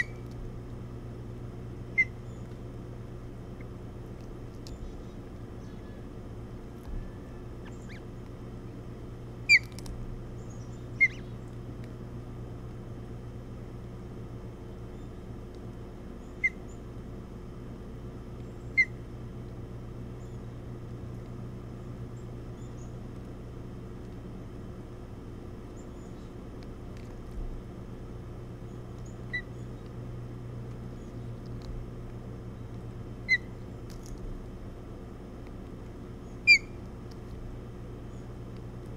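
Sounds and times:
steady low hum: 0.0s - 38.9s
osprey chirps: 7.0s - 8.1s, 9.4s - 9.8s, 10.4s - 11.5s, 33.2s - 33.6s, 36.2s - 36.8s.

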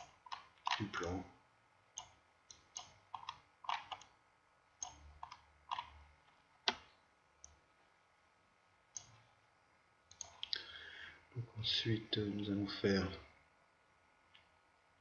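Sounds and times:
computer mouse clicking: 0.0s - 0.9s, 2.0s - 4.1s, 4.8s - 6.0s, 6.7s - 7.6s, 9.0s - 9.2s, 10.1s - 10.6s.

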